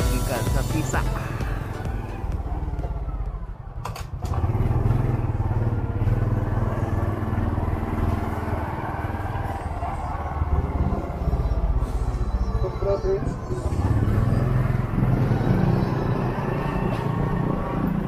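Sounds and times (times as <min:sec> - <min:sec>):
motorcycle engine running: 0:00.0 - 0:09.4.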